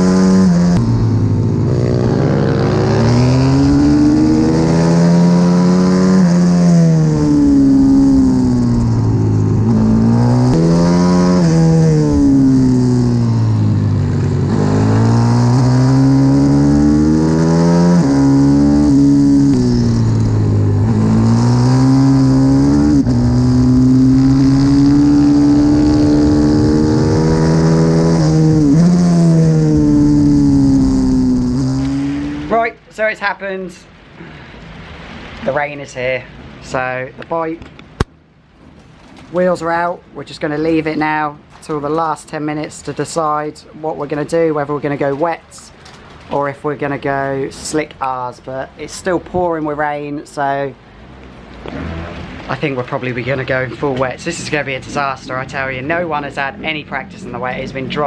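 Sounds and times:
motorbike engine revving: 0:00.0 - 0:32.6, 0:51.6 - 0:52.4.

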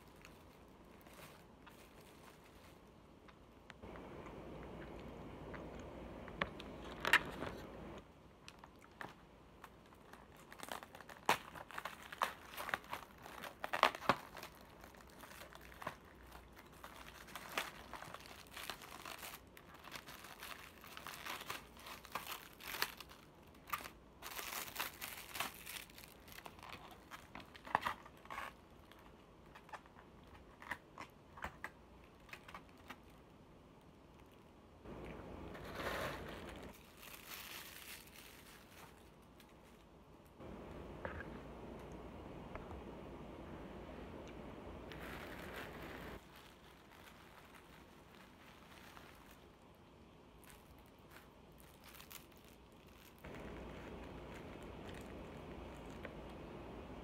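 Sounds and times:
low steady noise: 0:00.0 - 0:28.0, 0:32.9 - 0:52.0, 0:52.6 - 0:57.0
plastic container crinkling: 0:03.8 - 0:31.5, 0:50.4 - 0:56.8.

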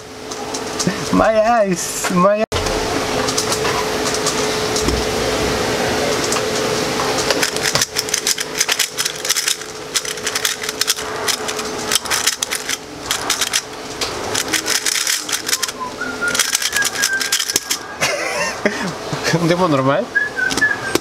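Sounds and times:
faint hum: 0:00.0 - 0:21.0
puzzle cube clicking and clacking: 0:07.2 - 0:17.8.

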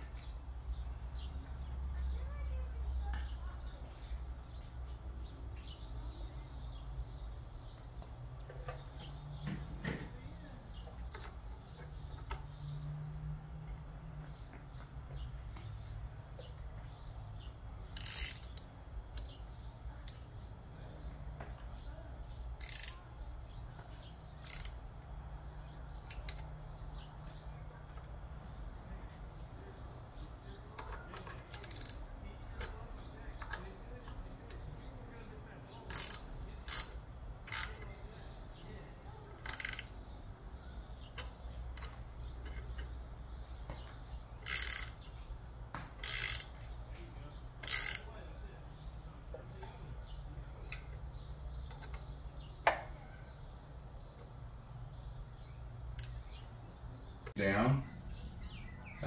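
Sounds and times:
hand ratchet clicking: 0:17.9 - 0:19.4, 0:22.6 - 0:23.0, 0:24.4 - 0:24.8, 0:26.1 - 0:26.4, 0:30.8 - 0:32.1, 0:35.9 - 0:37.8, 0:39.4 - 0:39.9, 0:44.4 - 0:45.1, 0:46.0 - 0:46.6, 0:47.6 - 0:48.1.

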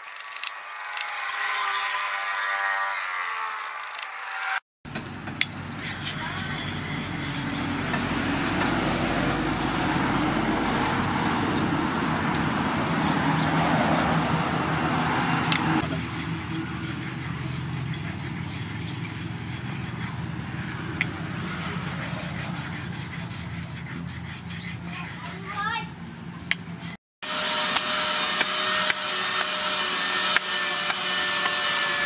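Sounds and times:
axe blade grinding on whetstone: 0:00.0 - 0:04.6, 0:05.4 - 0:08.2, 0:15.5 - 0:20.2, 0:20.9 - 0:25.8, 0:26.6 - 0:32.0.

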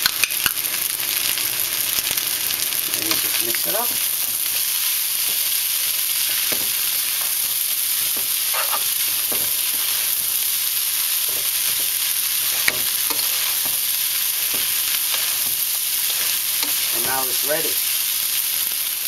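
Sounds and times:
rice sizzling in a pan: 0:00.0 - 0:19.0
spatula scraping a pan: 0:06.2 - 0:10.4, 0:11.2 - 0:17.4.

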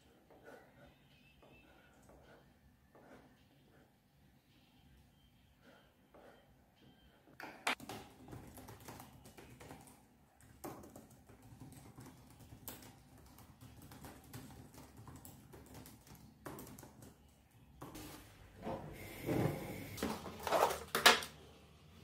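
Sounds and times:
laptop keyboard typing: 0:07.7 - 0:17.4.

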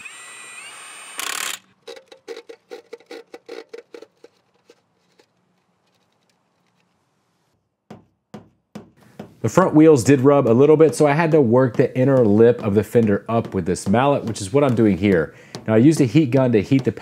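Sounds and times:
impact wrench whirring and hammering: 0:00.0 - 0:04.4, 0:10.0 - 0:17.0.

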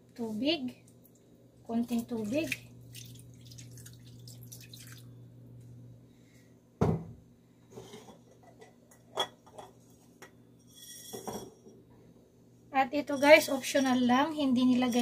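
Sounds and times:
water pouring into a pan: 0:02.9 - 0:05.1.

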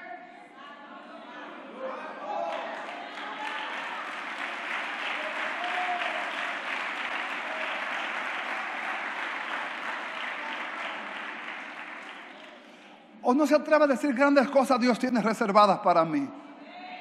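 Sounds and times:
congregation applauding: 0:02.5 - 0:13.0.

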